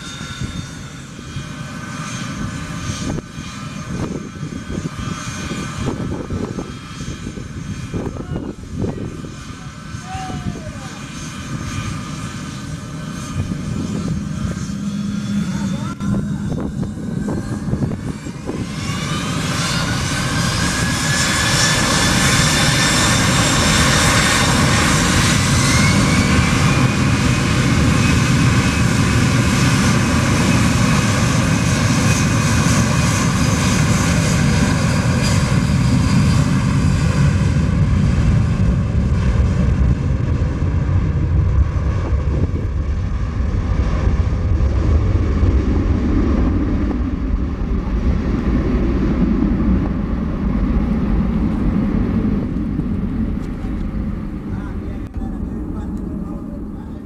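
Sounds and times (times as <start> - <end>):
jet engines spooling up: 0.0 - 57.0
low engine rumble: 38.3 - 57.0.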